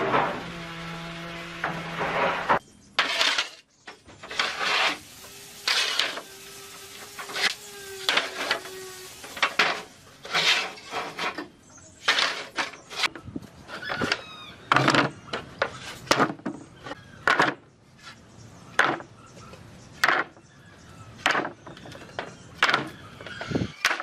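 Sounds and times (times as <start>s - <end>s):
scraping and knocking on wood: 1.6s - 5.0s, 9.3s - 18.2s.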